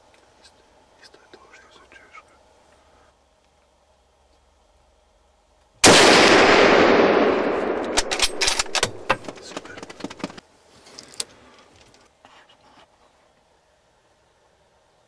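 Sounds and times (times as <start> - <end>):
rifle shot: 5.8 - 9.7.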